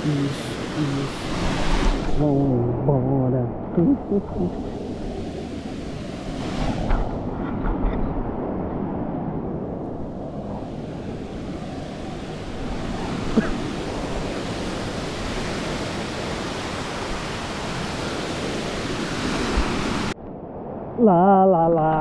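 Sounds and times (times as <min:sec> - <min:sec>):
waterfall rushing: 0:00.0 - 0:04.8.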